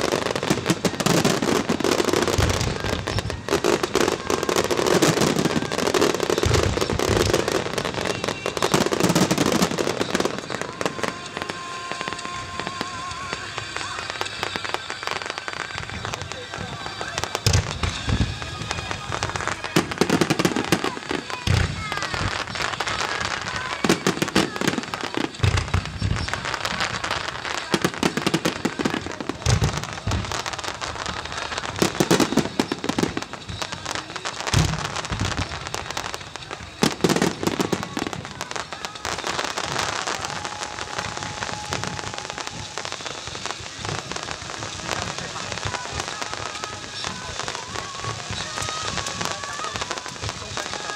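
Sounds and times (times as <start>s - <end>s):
firework booms: 0.0s - 50.9s
fireworks crackling: 0.0s - 50.9s
rain on umbrellas: 0.0s - 50.9s.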